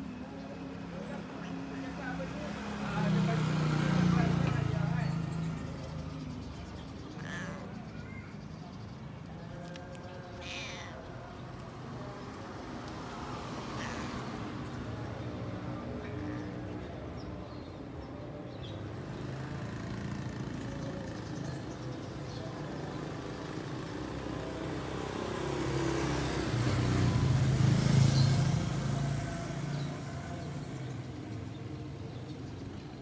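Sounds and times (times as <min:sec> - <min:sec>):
low hum of traffic: 0:00.0 - 0:33.0
car passing: 0:01.0 - 0:06.2, 0:23.9 - 0:31.4.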